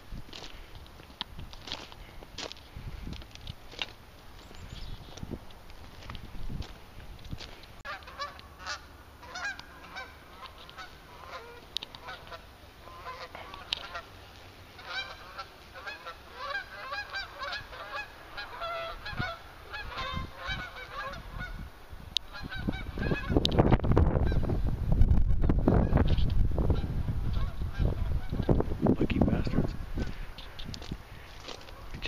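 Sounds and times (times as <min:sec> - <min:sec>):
geese honking: 0:07.8 - 0:24.5, 0:25.3 - 0:28.6, 0:29.3 - 0:32.0.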